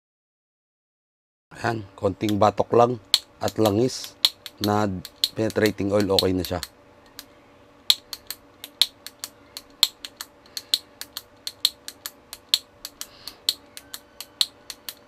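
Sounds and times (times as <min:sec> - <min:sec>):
plastic switch clicking rapidly: 0:03.1 - 0:07.3.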